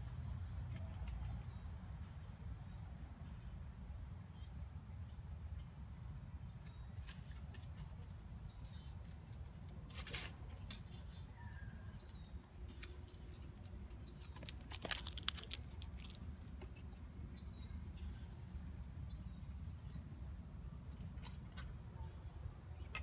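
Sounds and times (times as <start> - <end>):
squirrel rustling dry leaves: 6.7 - 17.1.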